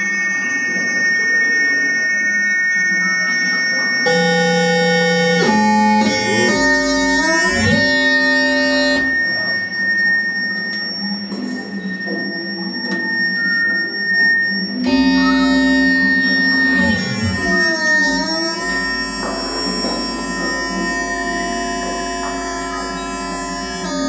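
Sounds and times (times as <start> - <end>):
constant high tone: 0.0 - 24.0
buzzy sliding synthesizer tones: 4.1 - 9.8, 14.8 - 24.0.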